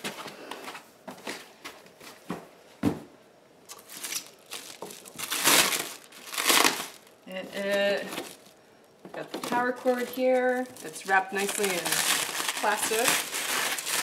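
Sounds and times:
plastic stretch wrap crinkling: 3.7s - 8.6s, 9.2s - 14.0s.

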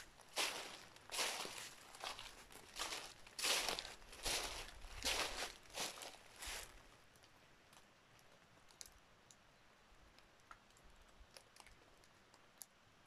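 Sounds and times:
footstep in dry leaves: 0.0s - 6.8s
faint clicks and ticks: 7.1s - 12.8s.

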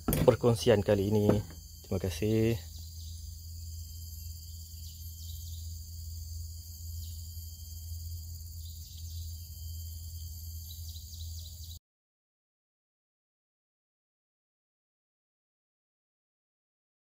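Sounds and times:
high-pitched insect chorus: 0.0s - 11.8s
low steady hum: 0.0s - 11.8s.

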